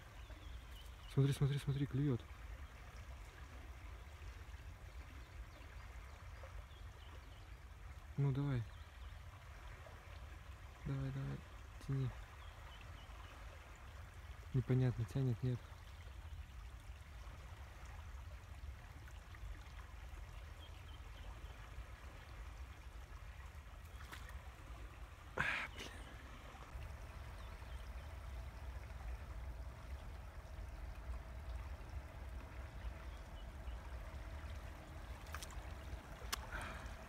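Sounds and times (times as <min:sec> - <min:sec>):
river water trickling: 0:00.0 - 0:37.0.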